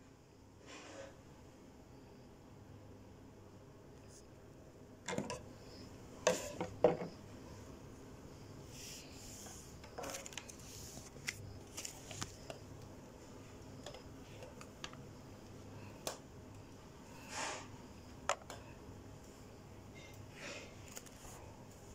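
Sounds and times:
plastic packaging clicks and crackles: 9.9 - 12.6.

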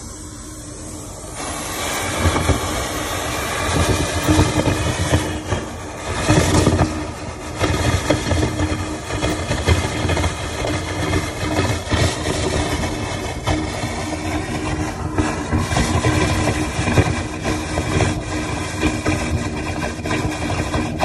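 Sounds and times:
water pump motor running: 0.0 - 21.0.

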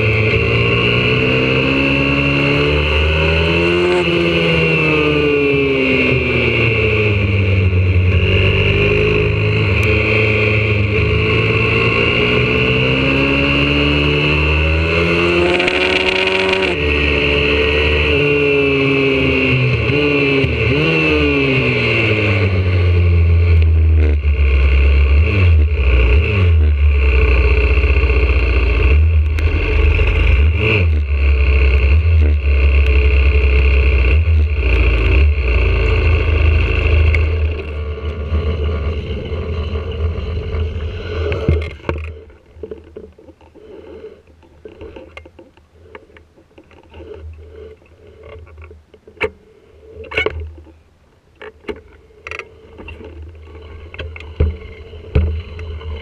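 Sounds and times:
motorbike engine running: 15.2 - 18.3.

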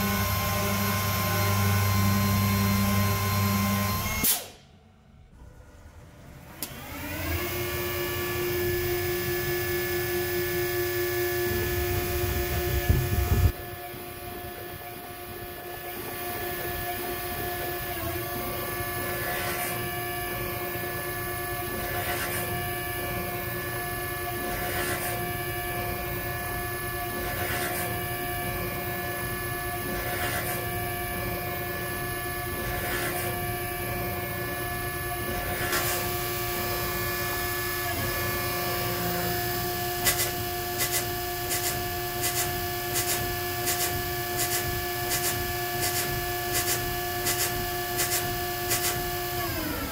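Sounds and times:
machine whine: 0.0 - 49.9
heavy low rumble: 11.6 - 13.5.

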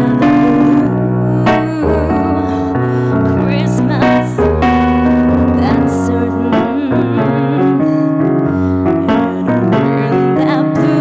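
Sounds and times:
electric piano sustained chords: 0.0 - 11.0.

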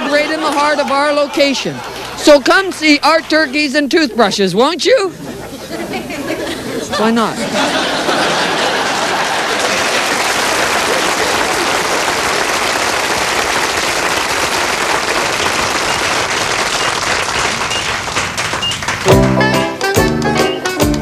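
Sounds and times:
audience applause: 0.0 - 3.7, 7.4 - 19.4.

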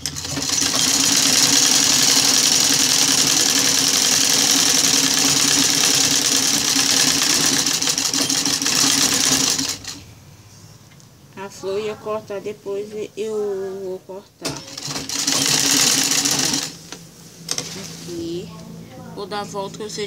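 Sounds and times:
sewing machine running fast: 0.0 - 10.0, 14.5 - 16.8.

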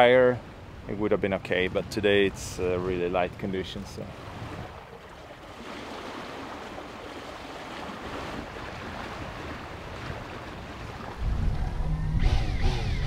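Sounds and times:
water washing along boat hull: 2.4 - 11.9
wind on microphone: 3.2 - 4.8, 8.0 - 13.0
loud low rumble: 11.2 - 13.0.

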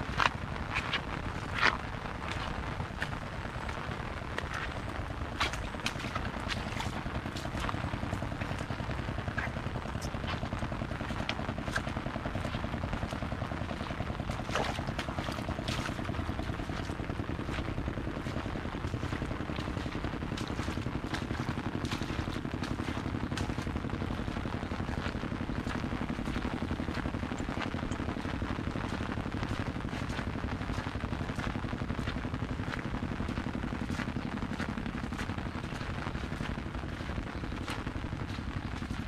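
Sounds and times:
rain pattering on umbrella: 0.0 - 39.0.

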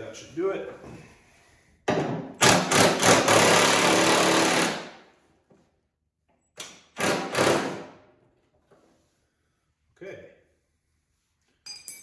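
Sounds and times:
impact wrench hammering: 1.9 - 5.0, 6.6 - 7.9.

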